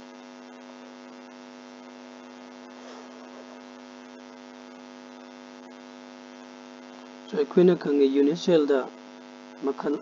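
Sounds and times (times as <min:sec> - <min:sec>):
electrical mains hum: 0:00.0 - 0:10.0.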